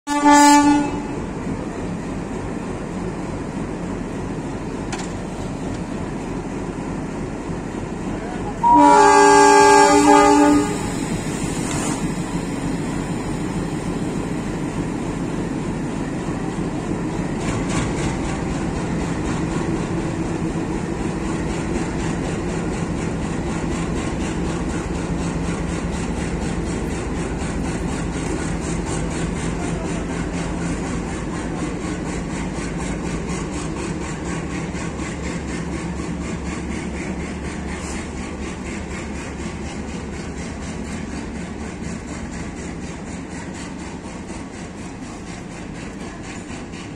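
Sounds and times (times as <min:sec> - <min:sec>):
train horn blast: 0:00.1 - 0:01.2, 0:08.5 - 0:11.0
locomotive engine rumble: 0:00.1 - 0:46.9.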